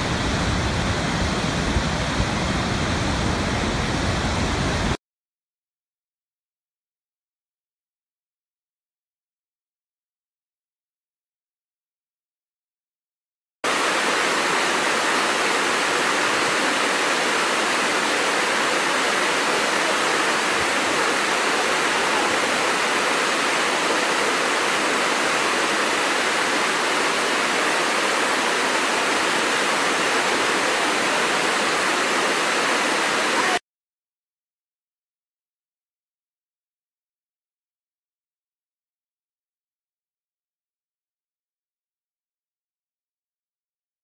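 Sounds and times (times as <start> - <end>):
waterfall roaring: 0.0 - 5.0, 13.7 - 33.6.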